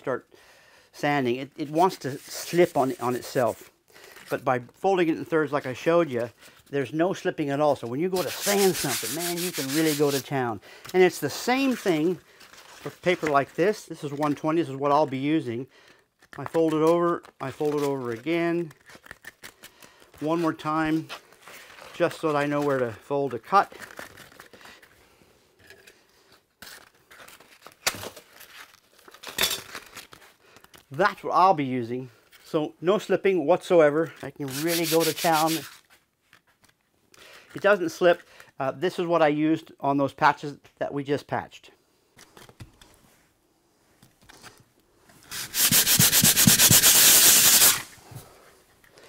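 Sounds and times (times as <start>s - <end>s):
sandpaper tearing: 1.7s - 3.6s, 8.1s - 10.3s, 11.2s - 12.1s, 34.4s - 35.8s, 45.2s - 48.0s.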